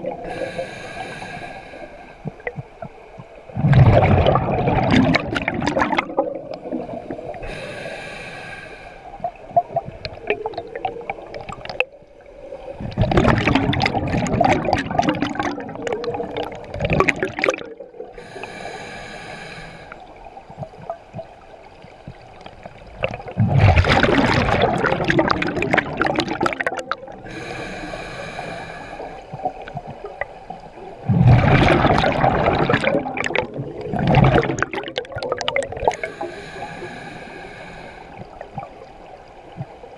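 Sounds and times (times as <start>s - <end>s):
hissing regulator inhalations: 0.2s - 2.4s, 7.4s - 9.2s, 18.2s - 20.0s, 27.2s - 29.7s, 35.9s - 38.4s
bubbling underwater exhalations: 3.6s - 7.6s, 12.8s - 18.2s, 23.0s - 27.4s, 31.0s - 36.2s.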